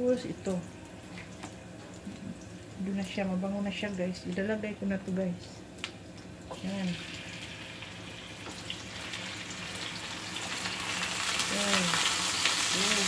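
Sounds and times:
chicken sizzling in hot oil: 0:05.9 - 0:13.0.

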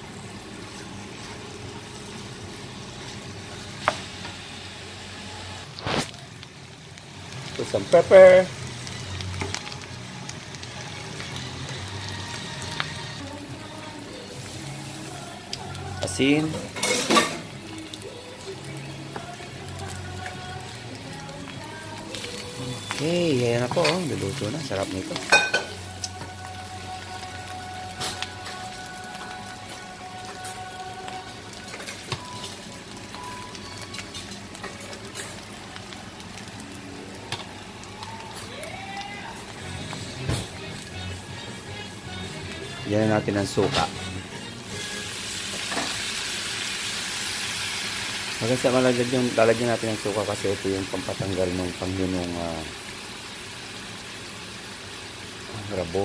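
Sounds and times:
food sizzling in a wok: 0:00.0 - 0:56.0.

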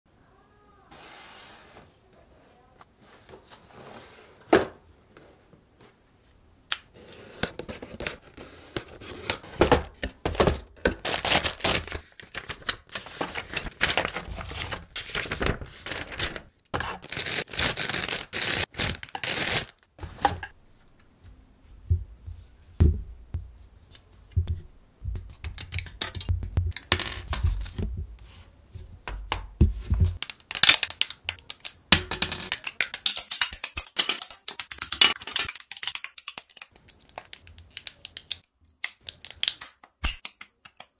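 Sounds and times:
packaging rustling and tearing: 0:10.9 - 0:19.9.

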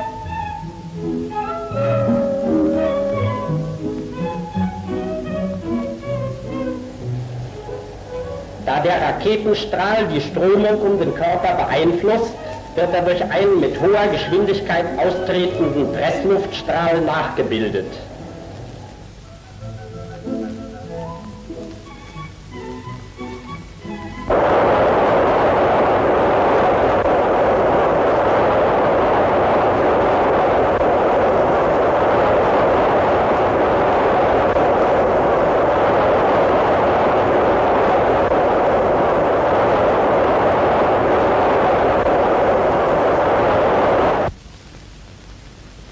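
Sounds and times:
rush of air in wind tunnel: 0:01.6 - 0:04.4, 0:24.3 - 0:44.3.

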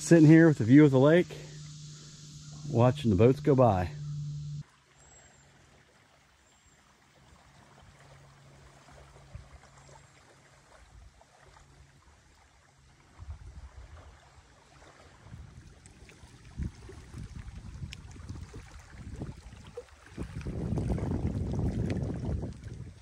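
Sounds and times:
distant motorboat droning: 0:00.0 - 0:04.6
wind rumble on microphone: 0:13.1 - 0:14.2, 0:15.2 - 0:23.0.

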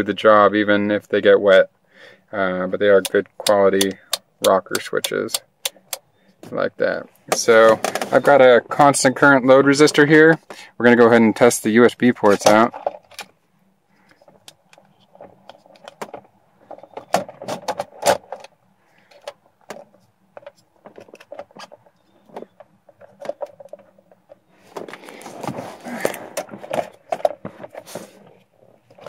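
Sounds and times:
rustling: 0:19.8 - 0:29.0.

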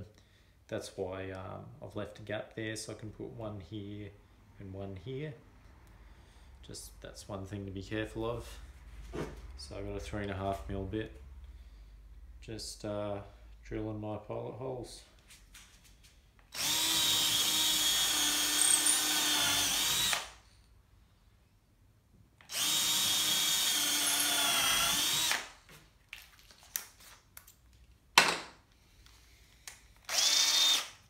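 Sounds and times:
cordless drill boring into wood: 0:16.5 - 0:20.3, 0:22.5 - 0:25.6, 0:30.0 - 0:31.0.

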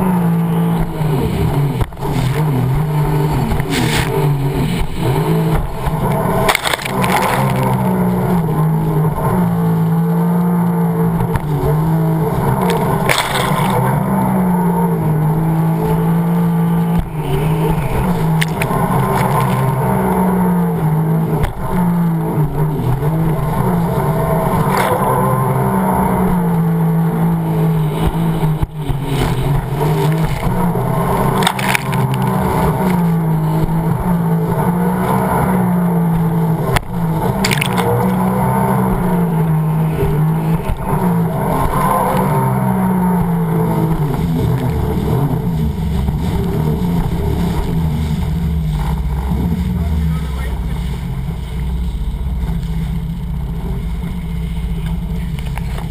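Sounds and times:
personal watercraft engine: 0:00.0 - 0:55.9
sharp water splashes: 0:00.0 - 0:55.9
water rushing against hull: 0:00.0 - 0:55.9.

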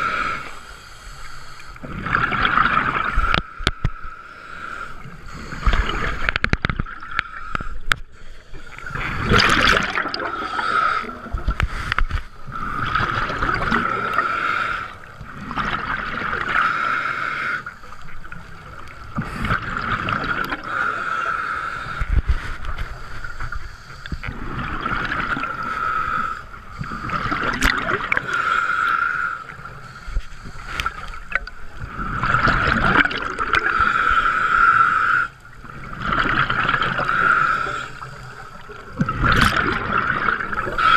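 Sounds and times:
hissing regulator inhale: 0:00.0 - 0:01.9, 0:03.2 - 0:06.4, 0:10.2 - 0:13.0, 0:14.0 - 0:15.1, 0:16.5 - 0:18.0, 0:20.6 - 0:32.4, 0:33.6 - 0:35.4, 0:37.0 - 0:38.8
exhaled bubbles bursting: 0:01.8 - 0:03.4, 0:08.9 - 0:11.6, 0:12.6 - 0:14.2, 0:19.2 - 0:20.7, 0:24.2 - 0:25.7, 0:26.9 - 0:28.3, 0:30.9 - 0:33.8, 0:35.7 - 0:37.2, 0:39.0 - 0:40.9.

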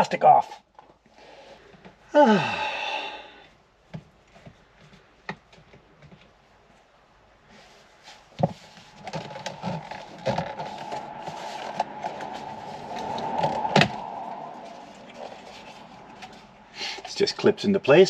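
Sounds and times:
steady whine: 0:08.4 - 0:17.3.

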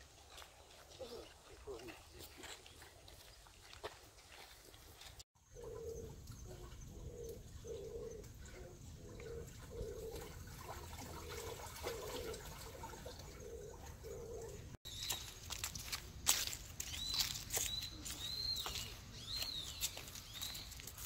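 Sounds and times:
dove cooing: 0:00.9 - 0:02.0, 0:05.5 - 0:14.8
small bird chirping: 0:16.8 - 0:21.0.

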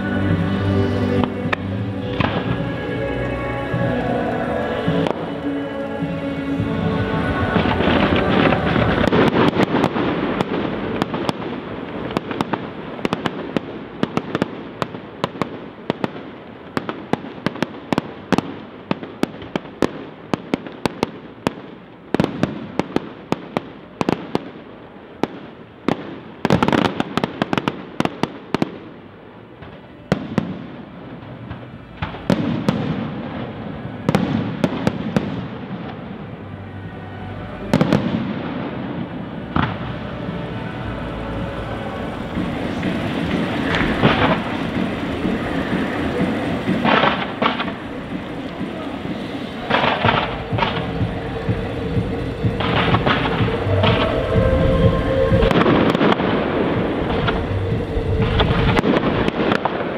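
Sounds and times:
fireworks cracking and popping: 0:00.0 - 0:36.5, 0:37.6 - 0:59.9
fireworks bangs: 0:00.0 - 0:59.9.

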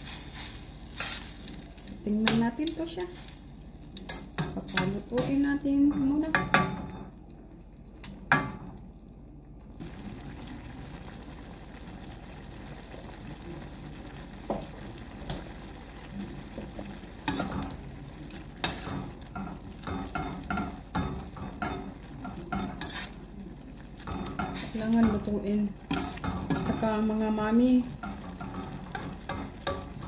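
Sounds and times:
noodles hissing in broth: 0:00.0 - 0:01.6, 0:22.8 - 0:23.4
metal tongs scraping pan: 0:00.0 - 0:03.3, 0:04.0 - 0:07.1, 0:17.2 - 0:17.8, 0:18.6 - 0:23.2, 0:24.0 - 0:30.0.

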